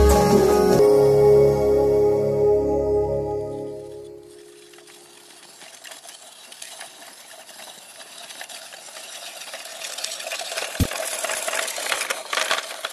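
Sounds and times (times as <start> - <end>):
toy tractor motor whining: 3.6 - 12.9.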